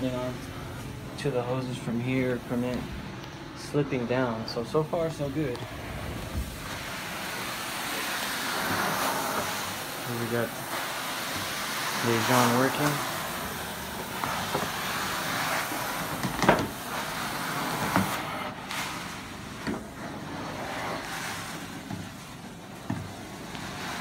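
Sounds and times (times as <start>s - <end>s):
carpet extraction wand suction: 5.5s - 24.0s.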